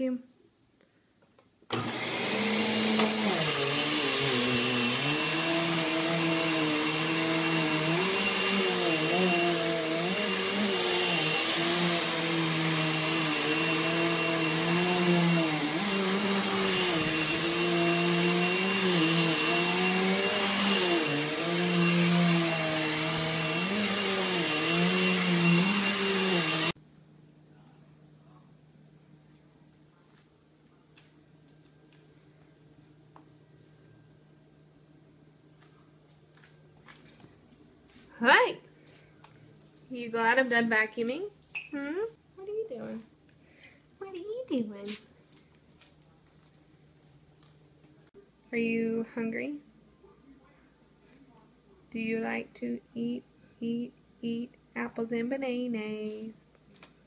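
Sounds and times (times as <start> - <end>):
vacuum cleaner running over carpet: 1.7 - 26.8.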